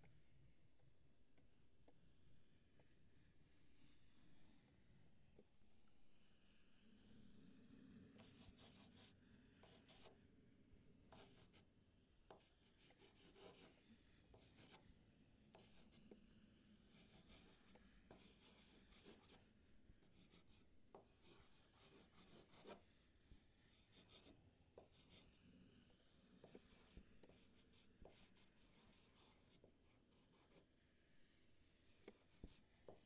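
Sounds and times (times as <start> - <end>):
drawing tool scratching: 8.2 - 10.2, 11.1 - 11.7, 12.3 - 14.9, 15.5 - 23.0, 23.6 - 30.7, 31.8 - 33.0.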